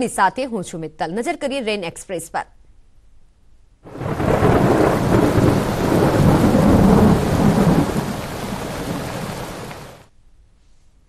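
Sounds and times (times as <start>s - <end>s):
thunder: 3.9s - 10.0s
heavy rain: 3.9s - 10.1s.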